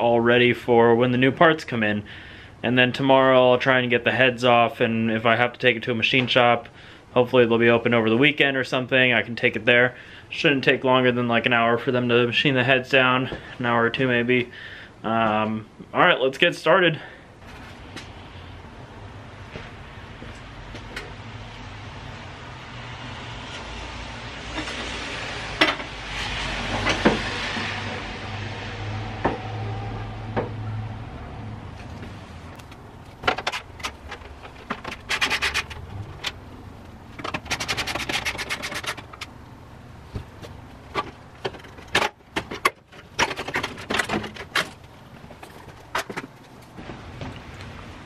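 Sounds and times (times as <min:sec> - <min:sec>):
traffic noise: 0:17.0 - 0:48.0.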